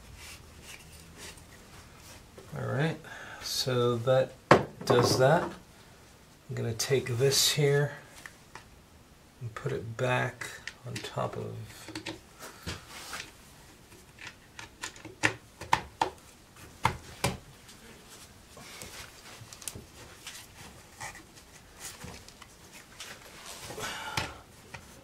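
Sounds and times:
quiet fumbling with parts: 9.6s - 25.0s.

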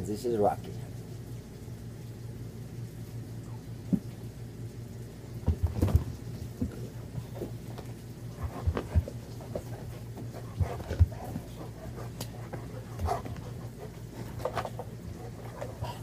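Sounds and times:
thumps on wooden floor: 5.4s - 6.8s
scuffling: 5.5s - 16.0s
puppy panting: 8.3s - 16.0s.

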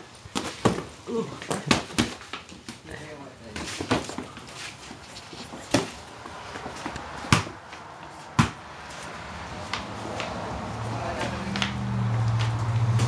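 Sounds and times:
boxing gloves punching: 6.6s - 7.6s, 8.2s - 8.7s.

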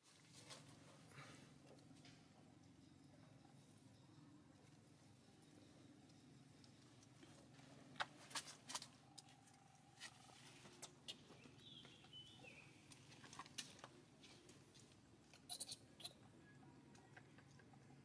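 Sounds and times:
baby monkey squeaking: 15.4s - 16.2s.

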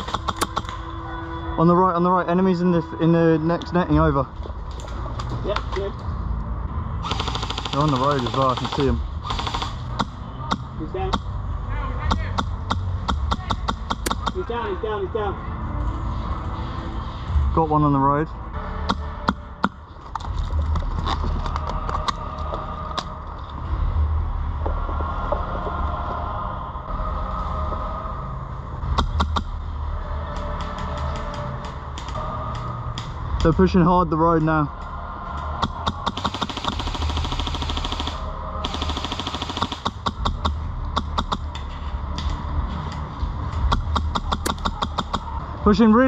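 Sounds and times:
steady low rumble: 0.0s - 46.0s
airsoft gun firing: 7.0s - 10.1s, 35.6s - 40.5s.

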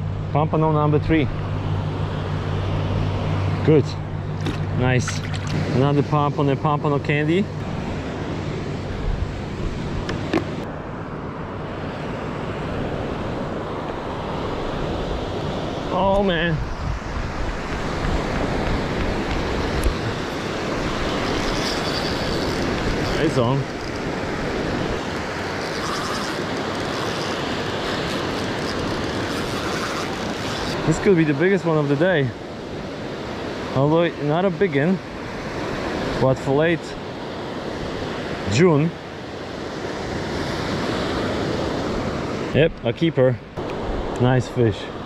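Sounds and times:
waves breaking in surf: 0.8s - 42.6s
wind rumbling on microphone: 11.5s - 31.1s.

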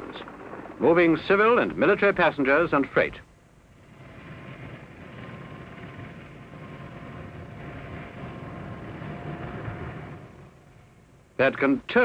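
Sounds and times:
faint steady whine: 0.0s - 12.0s
helicopter rotor and turbine noise: 0.0s - 12.0s
low rumble: 3.5s - 11.4s.

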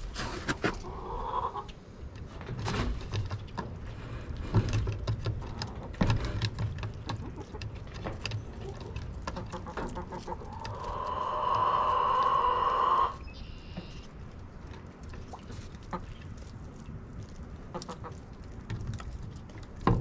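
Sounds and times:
chickens clucking: 0.0s - 2.0s, 5.2s - 14.2s, 15.1s - 16.5s, 17.6s - 18.5s
chicken long drawn-out call: 0.8s - 1.7s, 10.2s - 13.2s.

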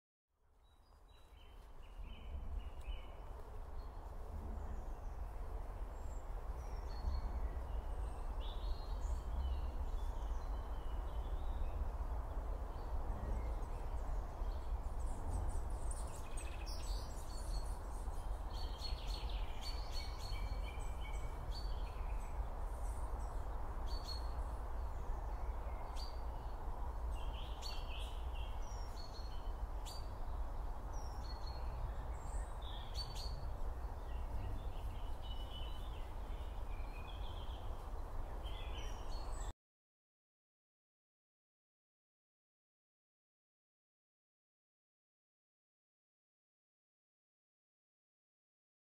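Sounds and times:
low rumble of wind: 0.4s - 39.5s
small birds chirping: 0.6s - 11.8s, 12.7s - 39.5s.

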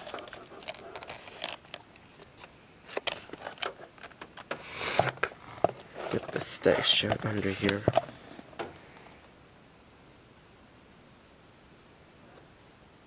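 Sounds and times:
plastic scraping rub: 0.0s - 8.8s
plastic fan clicks and knocks: 7.1s - 8.8s.

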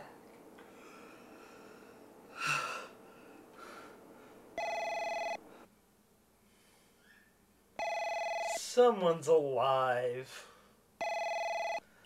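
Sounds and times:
electronic telephone ring: 4.6s - 5.4s, 7.8s - 8.6s, 11.0s - 11.8s.

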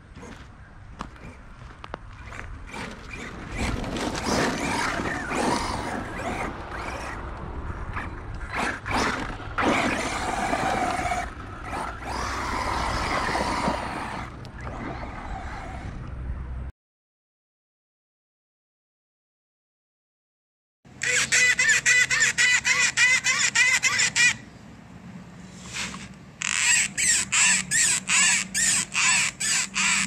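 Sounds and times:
electric motor whining: 2.2s - 16.2s.

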